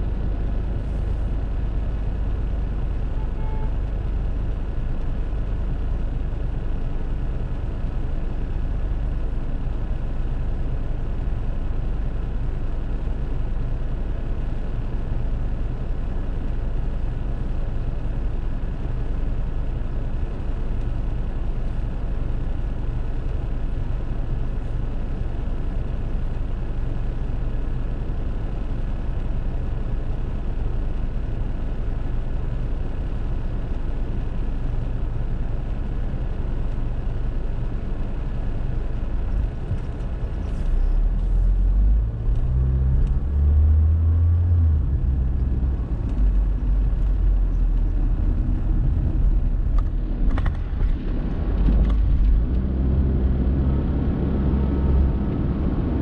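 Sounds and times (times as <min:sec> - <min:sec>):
car engine idling: 0:00.0 - 0:56.0
low road rumble: 0:00.0 - 0:56.0
car pulling away: 0:39.4 - 0:56.0.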